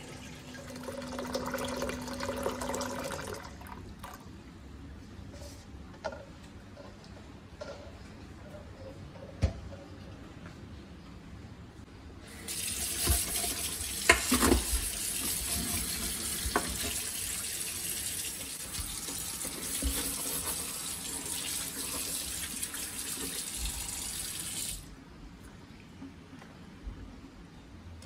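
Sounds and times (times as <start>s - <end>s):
water running into sink: 12.4s - 24.9s.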